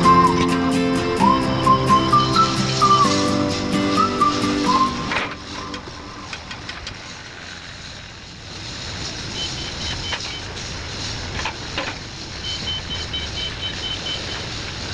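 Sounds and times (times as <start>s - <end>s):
construction machinery noise: 0.0s - 14.9s
rapid high-pitched warning beeper: 9.3s - 10.5s, 12.4s - 14.4s.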